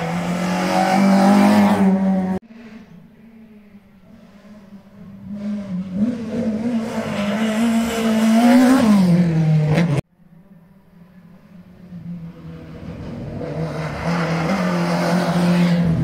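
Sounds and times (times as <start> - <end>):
rally car engine passing: 0.0 - 10.0, 11.0 - 16.0.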